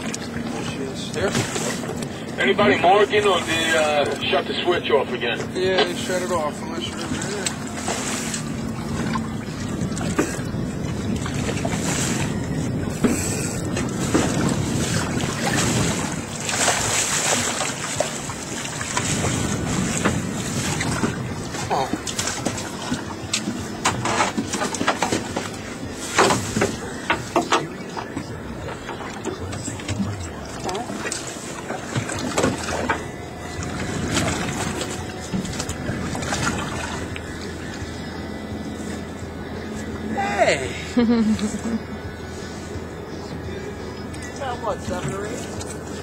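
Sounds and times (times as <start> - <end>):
water washing against hull: 0.0 - 40.6
boat noise: 0.0 - 46.0
wind buffeting microphone: 5.4 - 31.0, 31.6 - 40.0.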